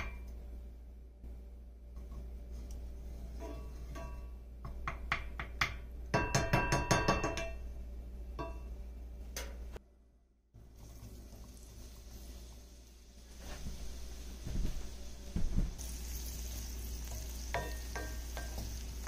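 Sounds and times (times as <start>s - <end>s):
wooden spoon tapping and scraping: 17.1s - 18.9s.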